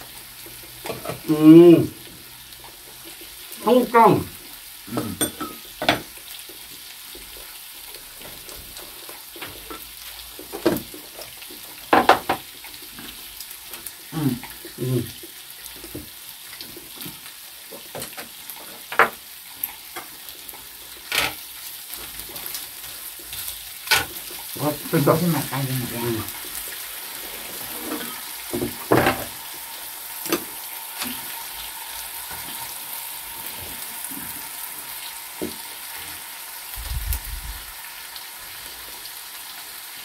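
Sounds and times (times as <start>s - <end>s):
meat sizzling on a grill: 0.0s - 40.0s
utensils clinking against grill: 4.9s - 6.1s.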